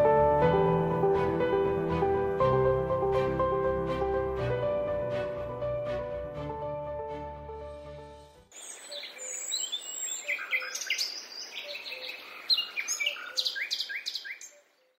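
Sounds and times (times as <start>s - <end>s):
faint outdoor hiss: 8.5s - 14.9s
songbirds chirping and singing: 8.5s - 15.0s.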